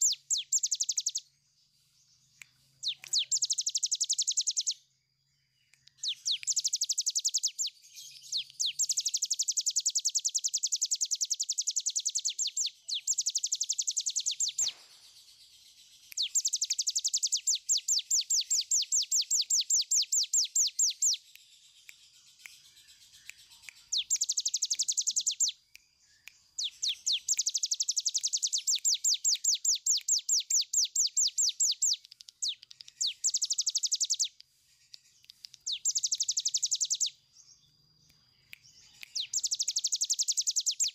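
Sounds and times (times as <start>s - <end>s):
bird rattling song: 0.0s - 1.2s, 2.8s - 4.8s, 6.0s - 37.2s, 38.5s - 40.9s.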